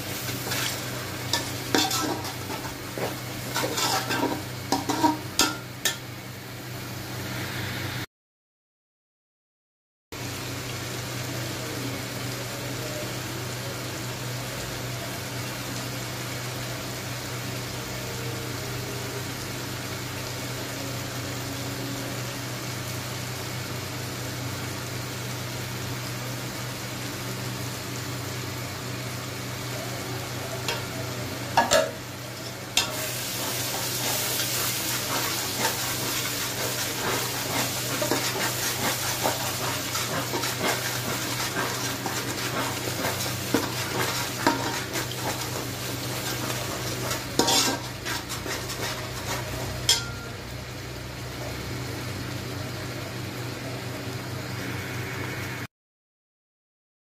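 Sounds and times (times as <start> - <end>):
spatula scraping pot: 0.0 - 5.6, 31.6 - 50.3
spices sizzling in a pot: 0.0 - 8.0, 10.2 - 55.6.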